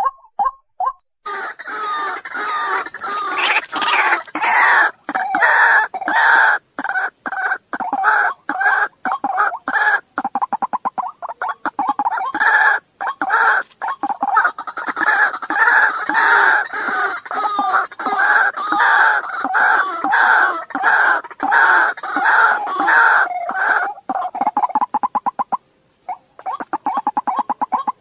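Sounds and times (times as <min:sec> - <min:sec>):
waterhen harsh calls: 0:01.3 - 0:28.0.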